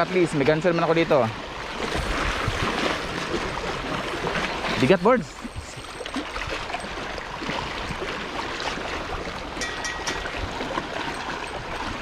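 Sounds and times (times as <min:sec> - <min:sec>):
sea water lapping against rocks: 0:00.0 - 0:12.0.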